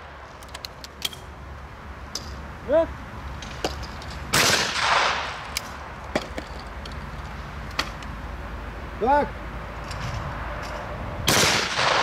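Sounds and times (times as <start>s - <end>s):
faint sharp gunshots: 4.4s - 5.3s, 11.3s - 12.0s
loud gunshot with echo: 11.3s - 12.0s.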